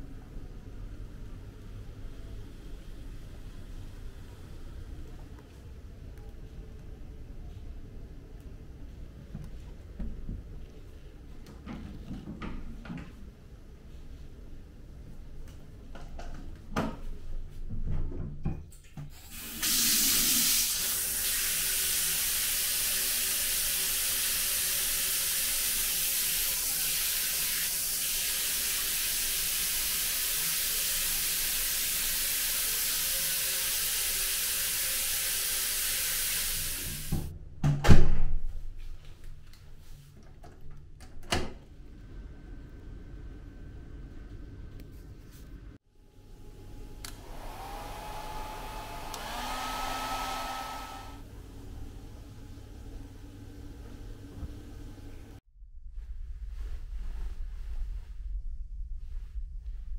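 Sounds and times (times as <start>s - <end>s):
shower spraying onto tiled floor: 19.2s - 37.3s.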